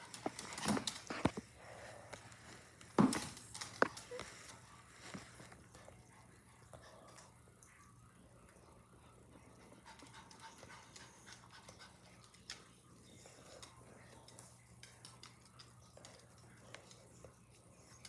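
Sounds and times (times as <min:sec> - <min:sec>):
dog claws clicking on hardwood floor: 0:00.0 - 0:01.5, 0:13.5 - 0:17.3
dog panting: 0:09.2 - 0:13.9.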